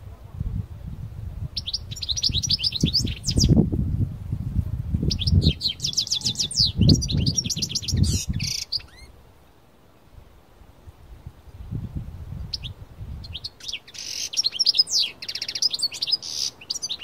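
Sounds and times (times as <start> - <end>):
goldfinch singing: 1.6 - 3.6, 5.1 - 9.1, 12.4 - 17.0.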